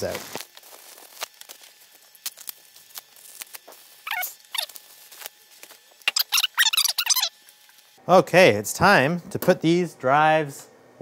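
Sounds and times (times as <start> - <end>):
bubble wrap crinkling: 0.0 - 7.9
high squeaky chirps: 4.0 - 4.8, 6.0 - 7.4.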